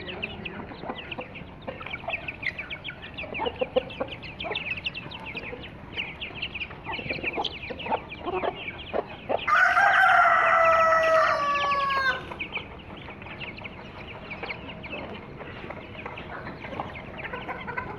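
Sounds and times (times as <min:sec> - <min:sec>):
chicks peeping: 0:00.0 - 0:17.9
hens clucking: 0:00.0 - 0:17.9
rooster crowing: 0:09.5 - 0:12.3.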